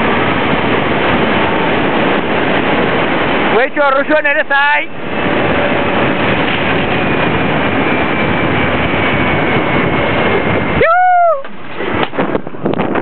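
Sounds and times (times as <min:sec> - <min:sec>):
wind rushing over microphone: 0:00.0 - 0:13.0
person crying out: 0:10.8 - 0:11.4.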